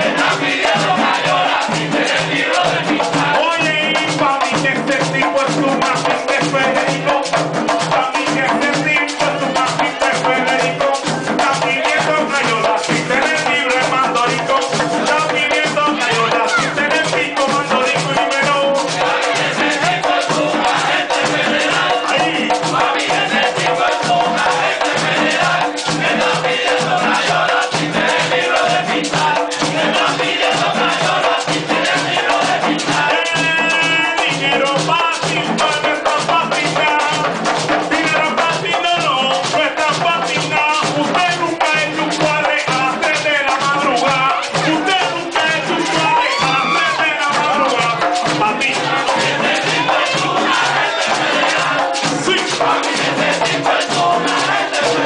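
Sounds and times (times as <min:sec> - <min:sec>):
frame drums beating: 0:00.0 - 0:55.0
singer and chorus singing: 0:00.0 - 0:55.0.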